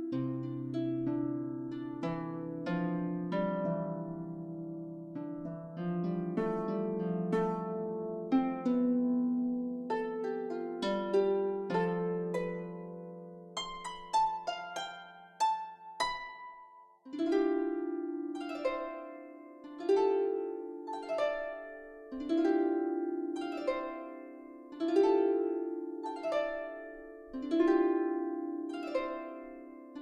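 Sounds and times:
harp music: 0:00.0 - 0:30.0.

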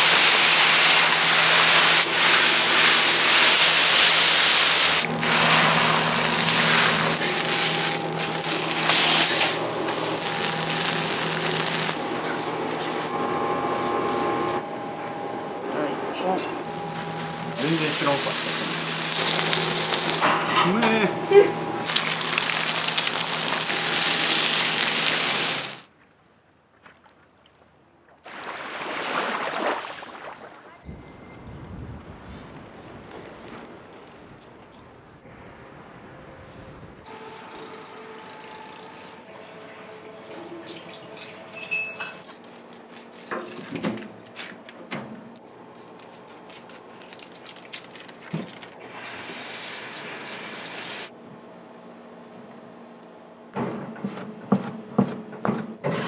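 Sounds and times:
meat and egg sizzling on griddle: 0:00.0 - 0:12.0, 0:17.6 - 0:20.2, 0:21.8 - 0:25.8, 0:48.9 - 0:51.1
utensils clattering: 0:39.9 - 0:44.7.

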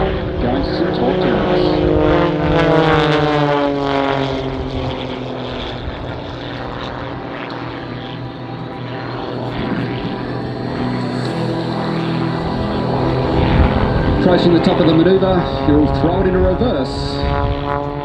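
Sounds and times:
propeller plane engine climbing: 0:00.0 - 0:18.0.

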